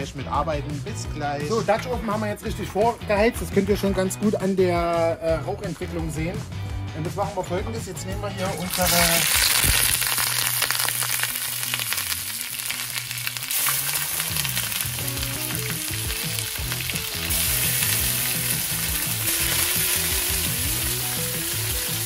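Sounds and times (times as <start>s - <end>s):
meat sizzling in a pot: 8.5s - 22.0s.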